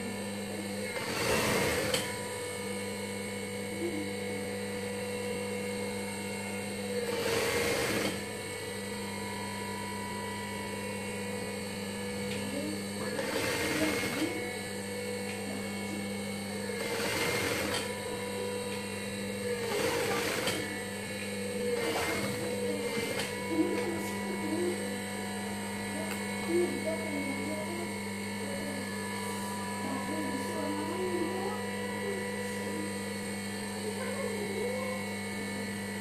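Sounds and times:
motor hum: 0:00.0 - 0:36.0
sewing machine needle whirring: 0:00.9 - 0:02.2, 0:07.0 - 0:08.2, 0:13.0 - 0:14.4, 0:16.7 - 0:17.9, 0:19.4 - 0:20.8, 0:21.6 - 0:23.9.

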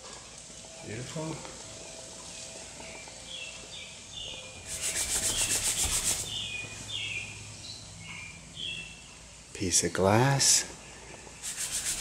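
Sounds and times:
hand rubbing car bodywork: 0:04.7 - 0:06.4, 0:11.4 - 0:12.0.

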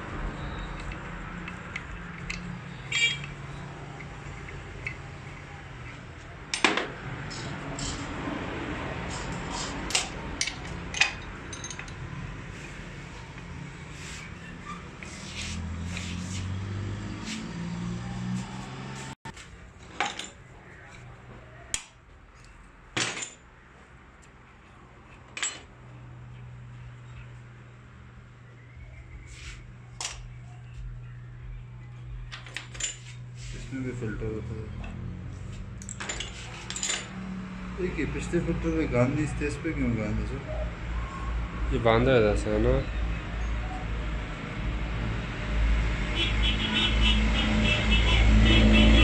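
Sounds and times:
steel parts clinking: 0:00.8 - 0:03.4, 0:04.0 - 0:06.7, 0:09.1 - 0:12.8, 0:32.3 - 0:33.2, 0:35.8 - 0:37.2
wrench clinking on metal: 0:09.9 - 0:12.1, 0:35.8 - 0:37.2.

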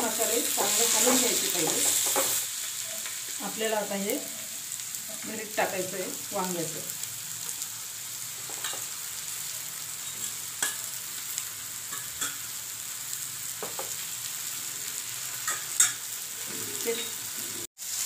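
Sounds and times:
masala sizzling in oil: 0:00.0 - 0:18.0
utensils knocking on pan: 0:00.6 - 0:02.4.

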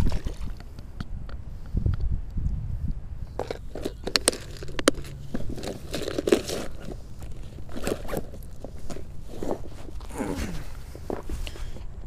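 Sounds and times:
plastic box clicks and rustles: 0:03.3 - 0:11.6
jacket brushing microphone: 0:03.3 - 0:11.8.

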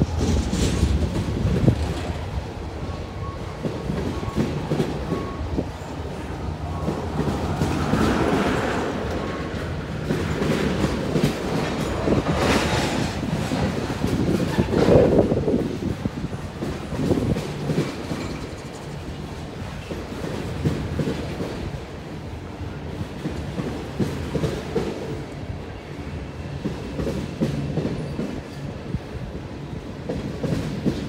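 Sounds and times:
freight train rumbling past: 0:00.0 - 0:31.0.

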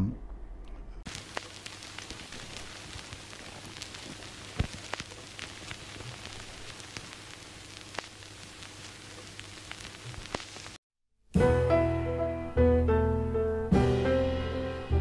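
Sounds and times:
vinyl crackles and pops: 0:01.0 - 0:10.8
vinyl surface hiss: 0:01.1 - 0:10.8.

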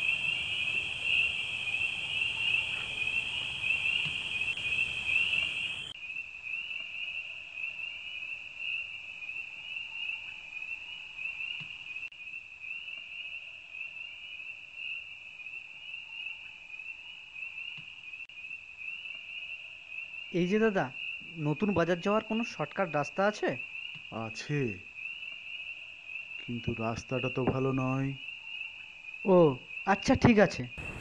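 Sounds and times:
low background hiss: 0:00.0 - 0:05.9
crickets trilling: 0:00.0 - 0:31.0.

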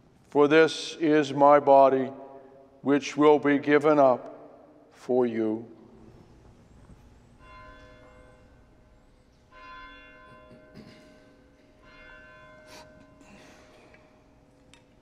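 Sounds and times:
faint bell ringing: 0:06.0 - 0:14.7.

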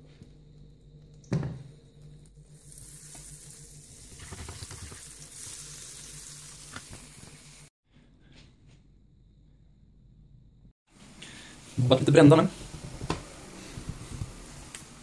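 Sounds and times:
butter sizzling in a frying pan: 0:02.6 - 0:07.7.

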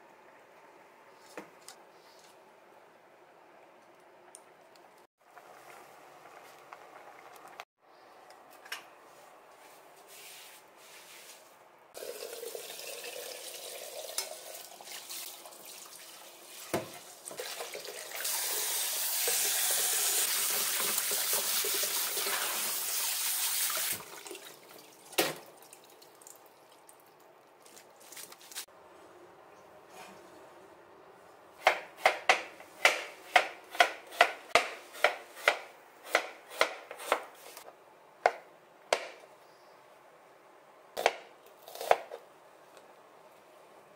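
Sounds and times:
tap water running into strainer: 0:12.0 - 0:26.4.

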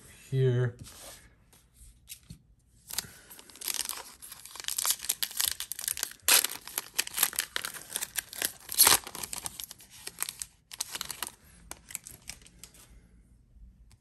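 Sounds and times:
foil wrapper tearing and crinkling: 0:02.9 - 0:12.5.

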